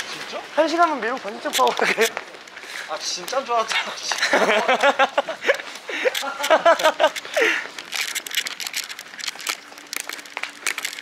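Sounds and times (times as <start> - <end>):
fast footsteps: 0.0 - 11.0
handheld microphone jostled: 1.0 - 11.0
men laughing and exclaiming: 1.6 - 2.2, 4.0 - 7.7.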